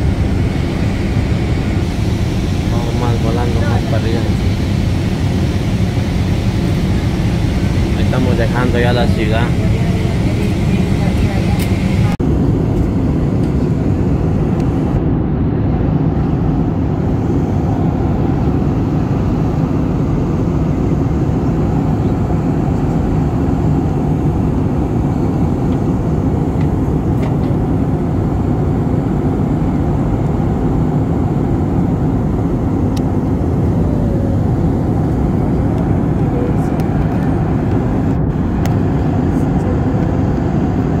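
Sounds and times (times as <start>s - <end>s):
airliner cabin engine rumble: 0.0s - 41.0s.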